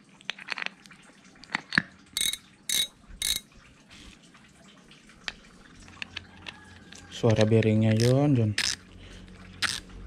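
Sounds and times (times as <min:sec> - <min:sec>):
spool clicking onto reel: 0:02.2 - 0:03.4, 0:07.3 - 0:08.8, 0:09.6 - 0:09.8.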